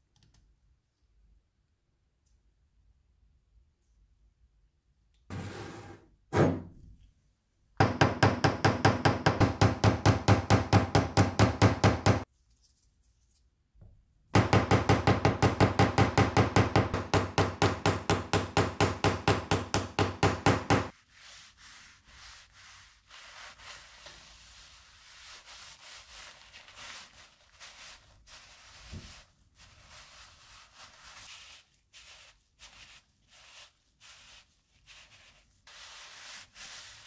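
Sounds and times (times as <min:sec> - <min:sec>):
hammer tapping on metal: 0:14.4 - 0:20.9
paper towel rubbing wood: 0:20.7 - 0:37.0.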